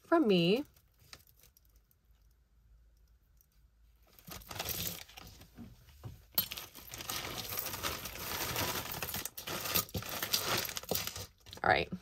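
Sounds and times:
jewelry clinking and rattling: 0:04.2 - 0:05.2, 0:06.3 - 0:11.6.

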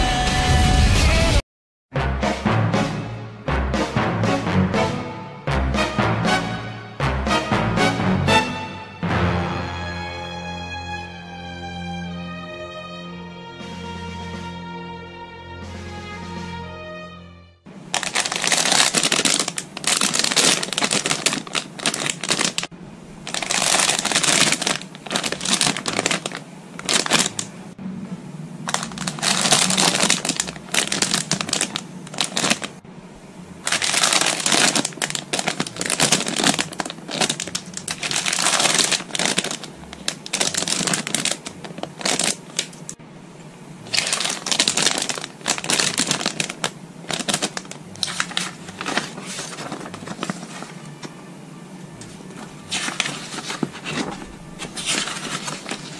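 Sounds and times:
plastic bags crinkling: 0:17.9 - 0:27.5, 0:28.7 - 0:32.8, 0:33.6 - 0:43.0, 0:43.9 - 0:50.8, 0:52.7 - 0:55.9.

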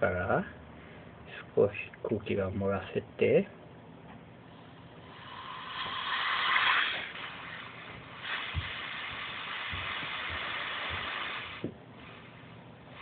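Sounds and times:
compressed air hissing: 0:04.5 - 0:13.0.

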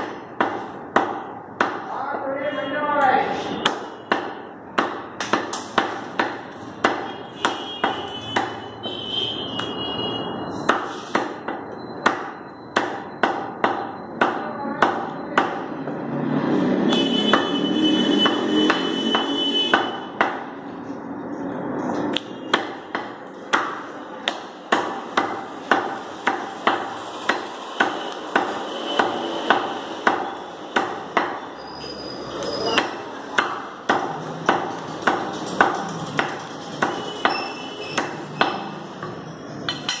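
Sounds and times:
cleaver chopping meat on wood: 0:00.0 - 0:01.9, 0:03.6 - 0:08.6, 0:10.6 - 0:15.8, 0:16.8 - 0:20.6, 0:22.1 - 0:31.5, 0:32.7 - 0:38.7.

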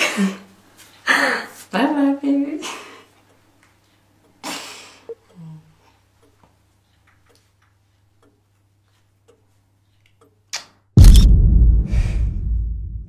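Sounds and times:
faint ticks: 0:05.1 - 0:10.4
camera shutter click: 0:11.0 - 0:11.3.

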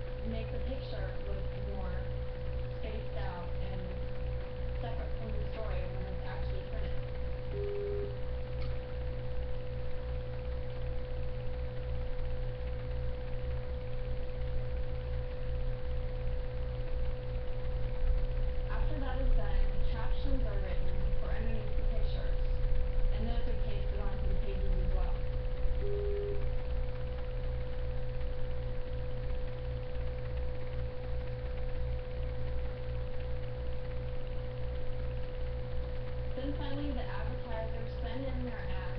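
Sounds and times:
constant mid-pitched tone: 0:00.0 - 0:38.9
steady electrical hum: 0:00.0 - 0:38.9
short low beep: 0:07.5 - 0:08.1, 0:25.8 - 0:26.4.

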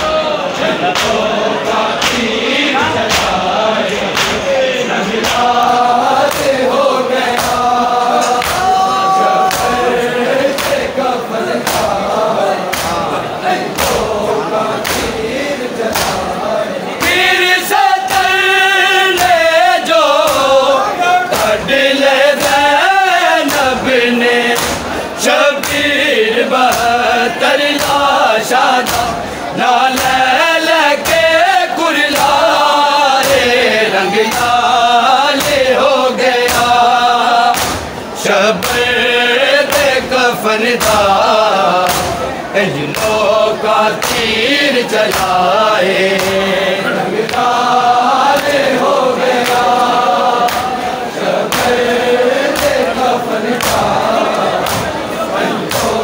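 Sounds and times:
men chanting together: 0:00.0 - 0:56.0
hands beating on chests: 0:08.4 - 0:09.8, 0:15.9 - 0:16.4, 0:40.8 - 0:42.3, 0:42.9 - 0:46.5, 0:51.5 - 0:55.0.

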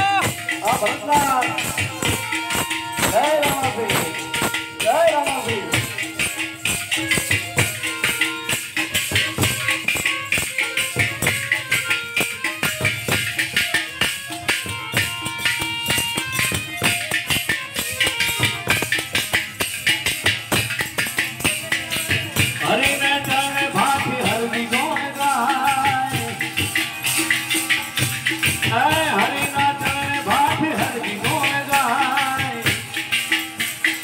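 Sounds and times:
hand percussion rhythm: 0:00.0 - 0:34.0
jingling cymbals: 0:00.0 - 0:34.0
person singing: 0:28.7 - 0:32.9.

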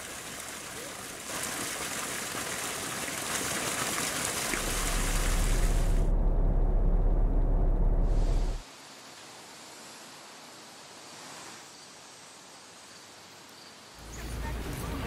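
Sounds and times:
water gushing down stone channel: 0:00.0 - 0:06.1
deep low rumble: 0:04.5 - 0:08.6.

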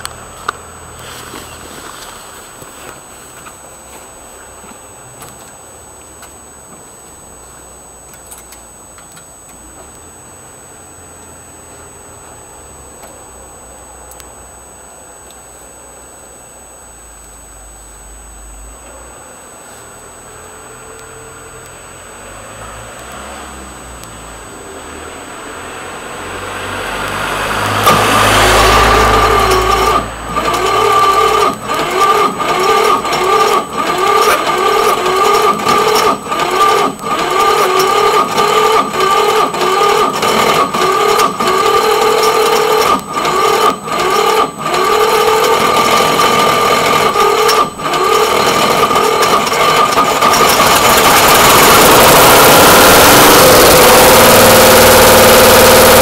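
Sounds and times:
diesel motorbike engine running: 0:00.0 - 0:07.6, 0:23.7 - 0:56.0.

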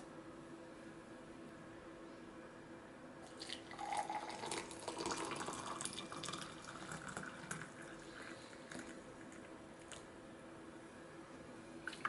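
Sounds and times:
water pouring into a mug: 0:03.3 - 0:09.0.

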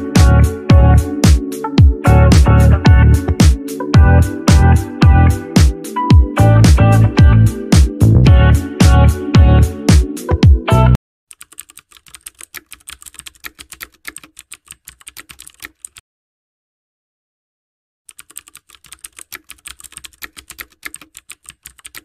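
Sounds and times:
loud music: 0:00.0 - 0:11.0
rapid keyboard typing: 0:11.3 - 0:16.0, 0:18.1 - 0:22.0.

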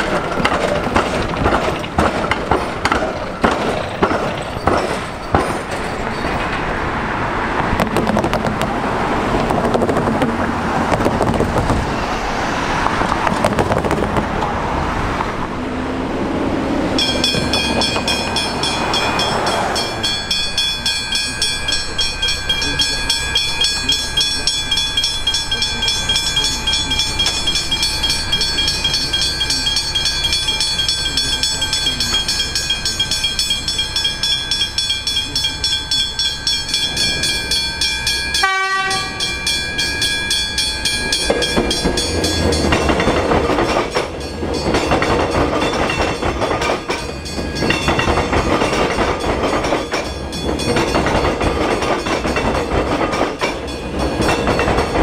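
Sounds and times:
train rumble and wheel clatter: 0:00.0 - 0:55.0
level crossing bells ringing: 0:16.9 - 0:55.0.

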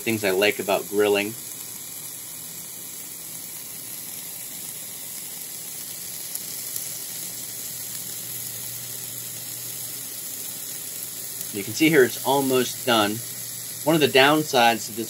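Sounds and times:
steak sizzling on a grill: 0:00.0 - 0:15.0.

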